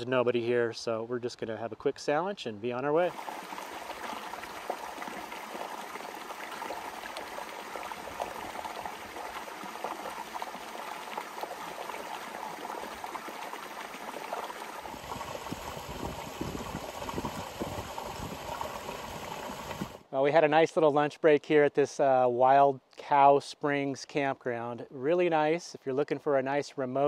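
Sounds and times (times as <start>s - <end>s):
creek trickling over rocks: 3.0s - 20.1s.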